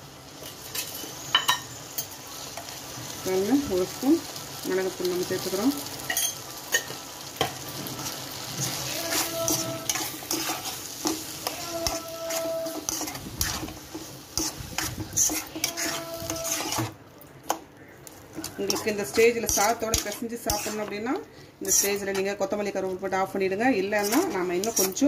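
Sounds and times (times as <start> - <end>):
meat sizzling in a pan: 0.0 - 25.0
steel spoon scraping a pan: 6.0 - 17.0, 18.4 - 22.4, 23.8 - 25.0.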